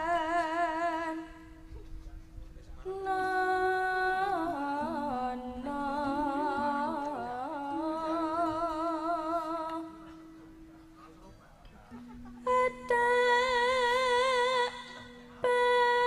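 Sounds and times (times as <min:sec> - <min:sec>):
woman singing with vibrato: 0:00.0 - 0:01.6, 0:02.9 - 0:10.1, 0:12.4 - 0:16.0.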